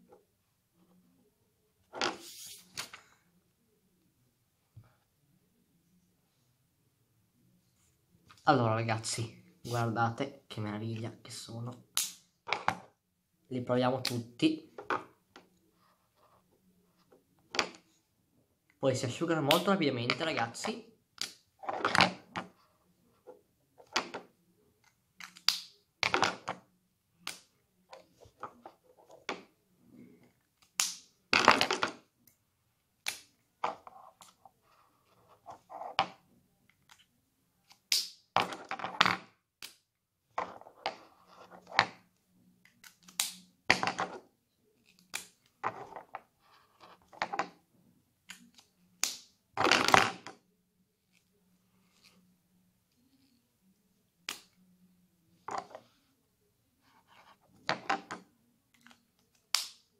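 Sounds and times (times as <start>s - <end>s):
marker caps clicking: 25.2s - 26.6s, 36.8s - 39.0s.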